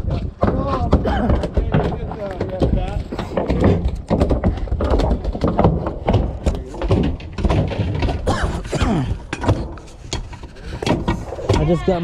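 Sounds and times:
voices: 11.3s - 12.0s.

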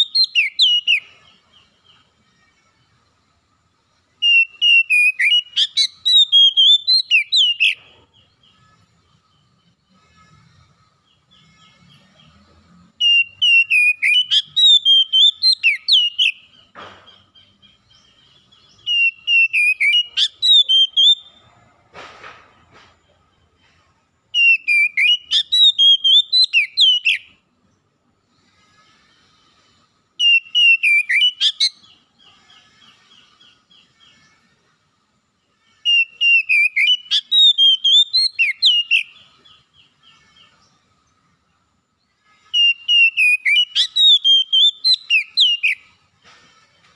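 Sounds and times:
bird singing whistled phrases: 0.0s - 1.1s, 4.2s - 7.8s, 13.0s - 16.5s, 18.8s - 21.3s, 24.4s - 27.3s, 30.2s - 32.0s, 35.9s - 39.3s, 42.5s - 45.9s
bird trilling: 0.0s - 1.7s, 4.2s - 8.6s, 13.0s - 21.4s, 24.4s - 27.3s, 30.2s - 34.4s, 35.8s - 40.8s, 42.4s - 46.0s.

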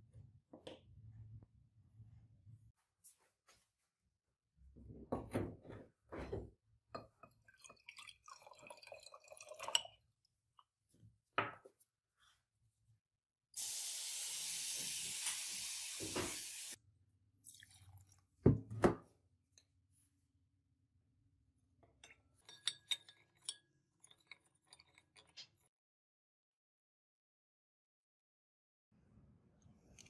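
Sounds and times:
hiss of running liquid: 13.6s - 16.8s.

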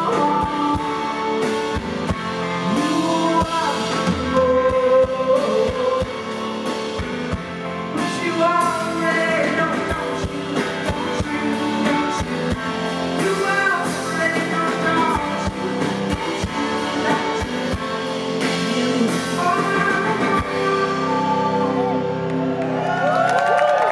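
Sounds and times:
woman singing: 0.0s - 1.2s, 2.7s - 6.2s, 8.0s - 12.6s, 13.2s - 22.2s
drum kit: 0.0s - 22.8s
keyboard: 0.0s - 23.9s
live rock band: 0.0s - 23.9s.

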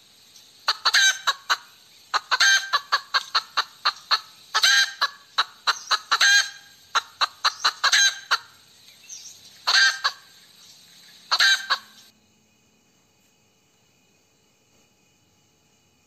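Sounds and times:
hen cackling: 0.6s - 8.7s, 9.6s - 12.1s.

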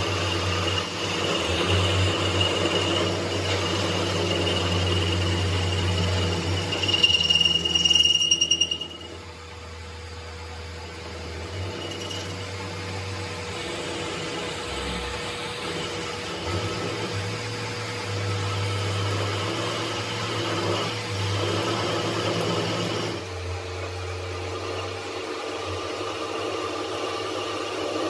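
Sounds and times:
workshop machine motor hum: 0.0s - 28.0s
rough hissing working noise: 9.1s - 28.0s.

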